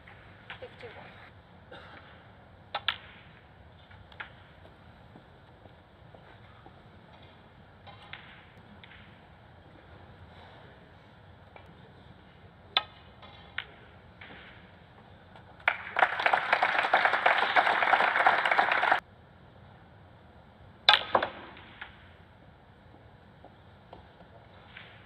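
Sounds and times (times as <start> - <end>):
audience applause: 15.6 - 19.0.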